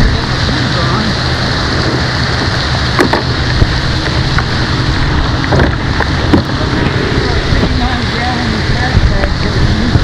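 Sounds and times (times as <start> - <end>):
storm rain and wind hiss: 0.0 - 10.0
sharp knocks: 3.0 - 3.3.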